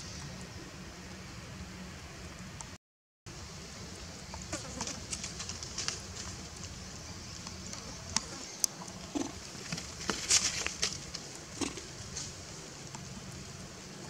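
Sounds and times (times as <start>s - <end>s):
steady low background hum: 0.0s - 14.0s
monkeys clicking and rustling: 4.3s - 13.6s.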